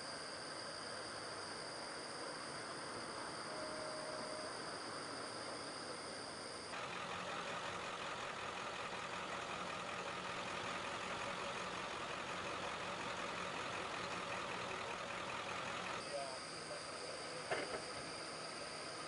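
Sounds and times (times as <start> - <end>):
constant hiss: 0.0 - 19.0
heavy vehicle engine idling: 6.7 - 19.0.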